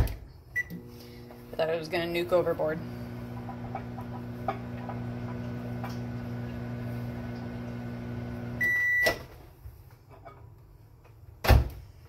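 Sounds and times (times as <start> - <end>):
long microwave beep: 0.6 - 0.8, 8.4 - 9.2
microwave oven humming: 0.6 - 9.0.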